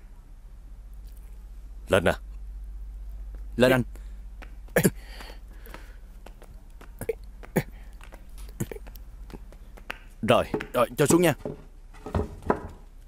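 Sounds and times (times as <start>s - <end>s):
wooden panel knocks and bumps: 10.5s - 12.9s.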